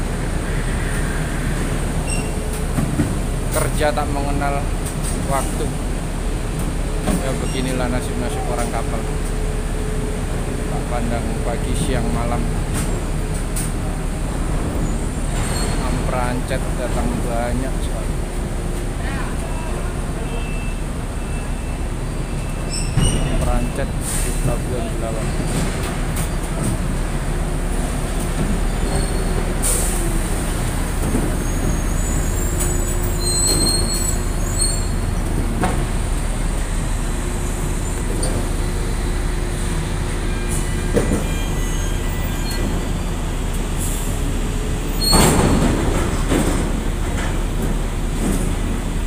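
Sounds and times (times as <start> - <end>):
low drone of ship machinery: 0.0 - 49.0
high metallic squeals: 2.0 - 2.4, 31.4 - 35.0, 40.1 - 43.0.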